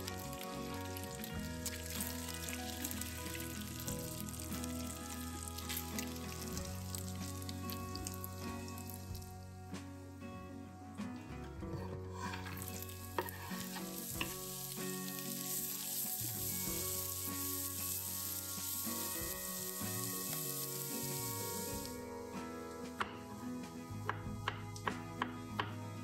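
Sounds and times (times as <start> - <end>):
vegetables sizzling in a frying pan: 0.0 - 9.3, 12.1 - 22.0
spatula scraping a pan: 12.1 - 14.4.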